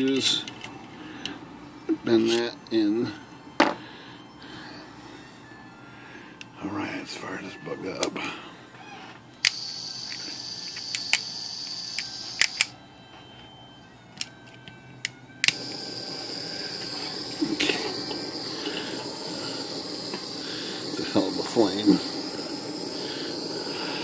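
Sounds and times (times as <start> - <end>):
torch flame hissing: 9.4 - 12.7, 15.5 - 24.0
torch igniter click: 9.4 - 12.7, 15.4 - 24.0.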